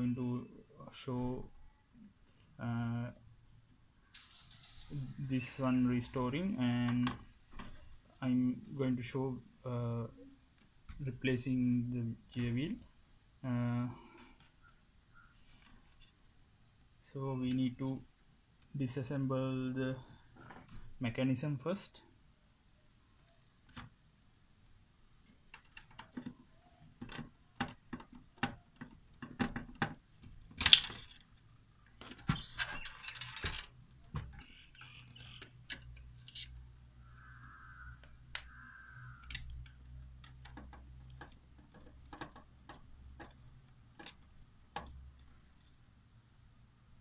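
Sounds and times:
tools clicking and knocking on metal: 0:25.5 - 0:36.6, 0:39.2 - 0:45.8.

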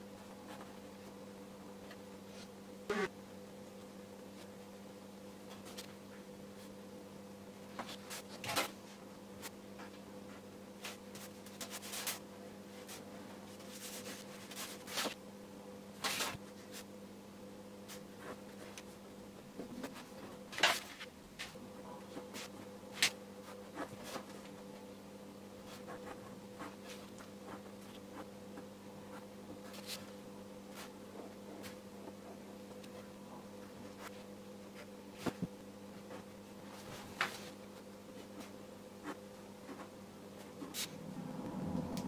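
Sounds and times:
steady low hum: 0:00.0 - 0:42.0
brush and pen scratching paper: 0:10.3 - 0:12.2, 0:12.8 - 0:15.2, 0:25.6 - 0:28.4, 0:38.2 - 0:41.0.

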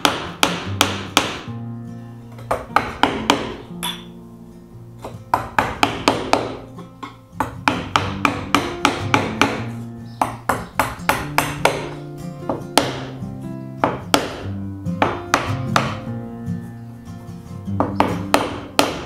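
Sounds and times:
chisel tapping into hard wood: 0:00.0 - 0:01.5, 0:02.4 - 0:04.1, 0:05.0 - 0:13.2, 0:13.8 - 0:16.1, 0:17.8 - 0:19.0
background music with chords: 0:00.0 - 0:19.0.

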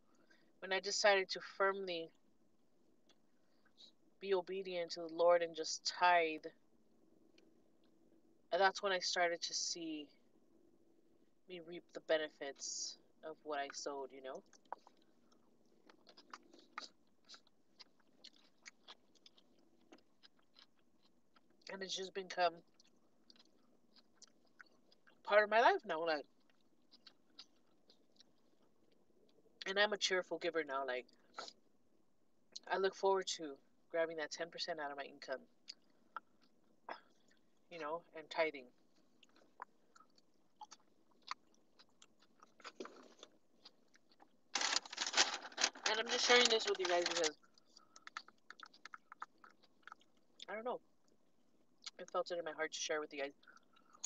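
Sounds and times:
person chewing food: 0:14.4 - 0:21.7, 0:22.6 - 0:25.2, 0:26.2 - 0:29.6, 0:35.6 - 0:37.6, 0:38.8 - 0:45.9, 0:46.9 - 0:52.0, 0:53.3 - 0:54.0.

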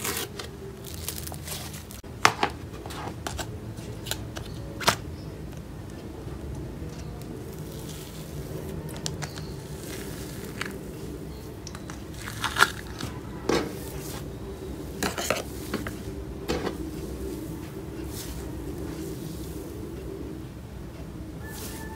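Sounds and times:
steady low hum: 0:00.0 - 0:21.9
slime crackling and popping: 0:11.7 - 0:13.2.

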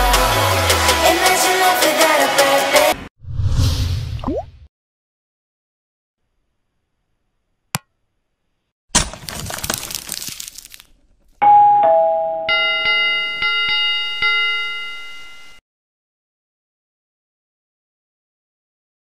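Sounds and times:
shattering crash: 0:08.9 - 0:10.6
bell ringing: 0:11.4 - 0:15.6
two-note ding-dong chime: 0:11.4 - 0:15.6.

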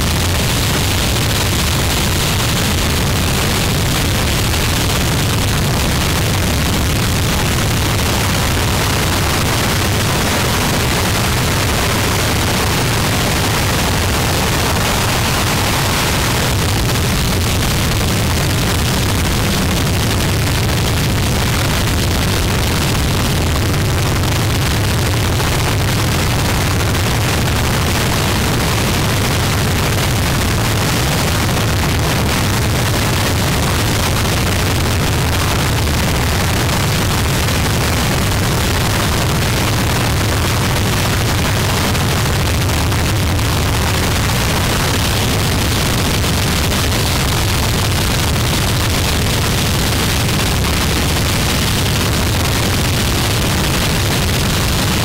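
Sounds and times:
harsh distorted noise music: 0:00.0 - 0:39.4.

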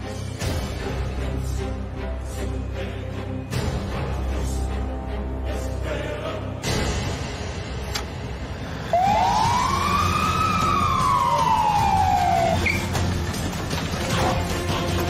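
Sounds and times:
ambulance siren wailing: 0:08.8 - 0:12.9.

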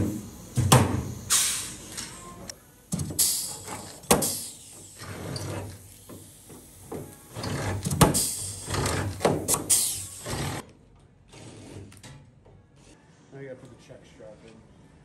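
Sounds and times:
rivet gun air hiss: 0:00.0 - 0:10.6.

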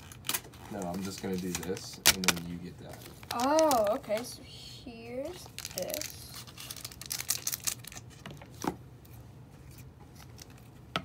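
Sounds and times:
card packaging clicks and crinkles: 0:00.0 - 0:04.3, 0:05.3 - 0:08.7.

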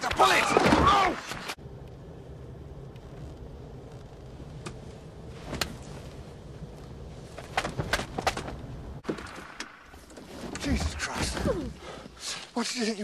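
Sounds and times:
low steady rumble: 0:01.6 - 0:09.0.

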